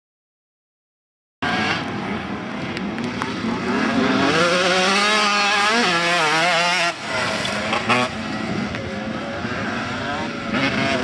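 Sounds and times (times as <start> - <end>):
dirt bike engine revving: 1.4 - 2.3, 3.2 - 11.0
dirt bike engine running steadily: 1.8 - 11.0.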